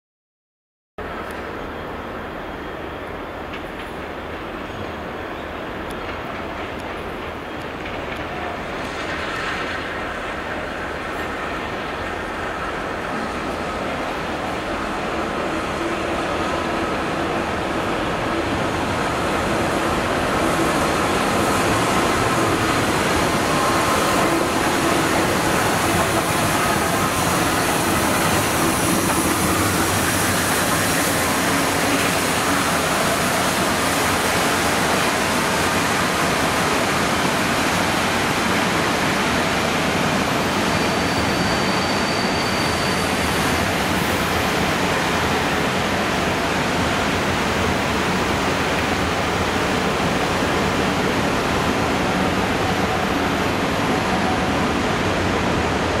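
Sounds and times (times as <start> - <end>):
steam train passing: 1.0 - 56.0
short high squeal: 40.5 - 44.0.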